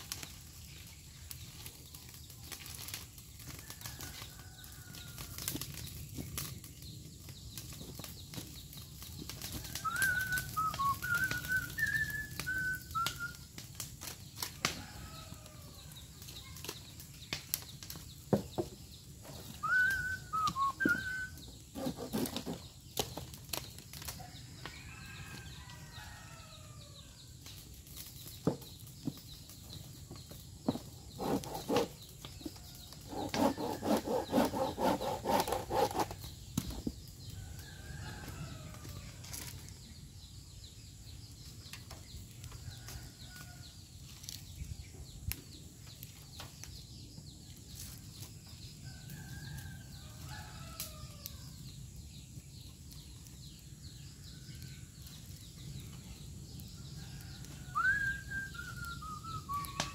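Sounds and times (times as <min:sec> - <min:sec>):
fire crackling and popping: 0:00.0 - 0:24.8, 0:27.3 - 0:33.4, 0:38.7 - 0:49.8, 0:50.8 - 0:59.9
rapid pulsing animal calls: 0:31.2 - 0:32.0, 0:33.0 - 0:36.2.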